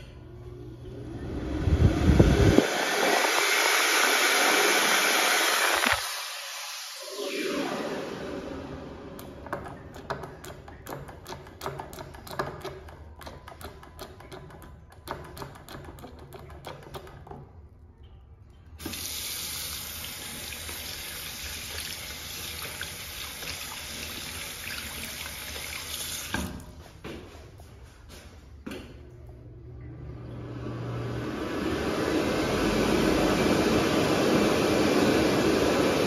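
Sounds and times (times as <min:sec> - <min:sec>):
tap water running into sink: 0:09.2 - 0:17.5, 0:18.8 - 0:26.7.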